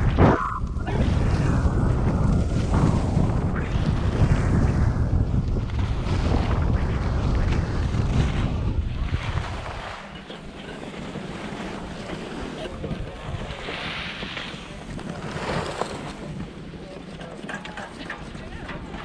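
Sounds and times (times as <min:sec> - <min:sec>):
wind noise on microphone: 0:00.0 - 0:10.1
skis scraping over snow: 0:01.0 - 0:19.0.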